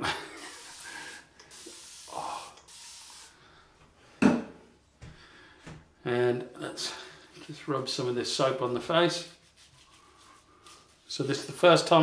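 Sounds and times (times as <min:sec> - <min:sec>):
tap running water: 0:00.4 - 0:03.4.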